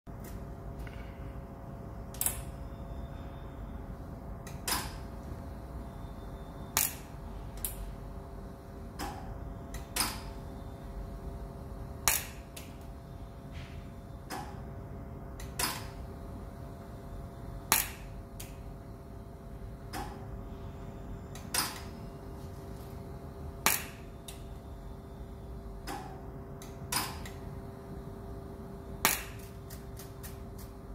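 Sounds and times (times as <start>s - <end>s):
welding machine hum: 21.5s - 30.9s.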